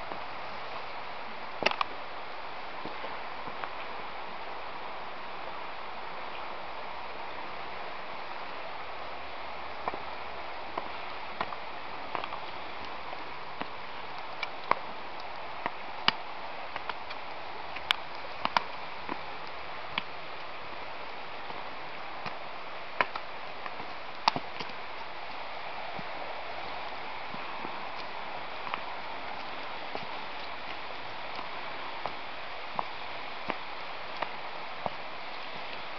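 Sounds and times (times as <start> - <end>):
river flowing: 0.0 - 35.9
footsteps on stony path: 21.4 - 35.9.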